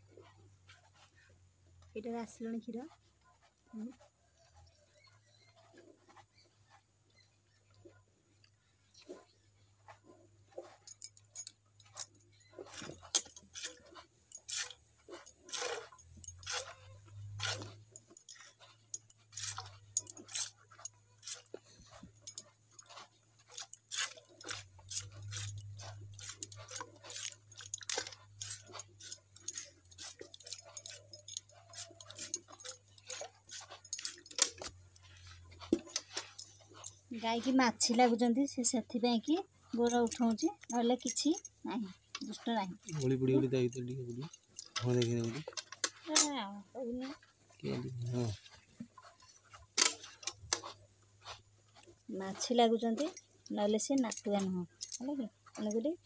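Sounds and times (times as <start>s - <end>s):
light metallic clinks: 0.0s - 56.0s.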